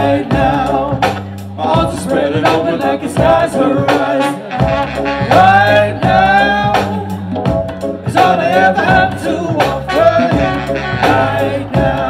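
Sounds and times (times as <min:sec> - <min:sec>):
bass line: 0:00.0 - 0:12.0
drum beat: 0:00.0 - 0:12.0.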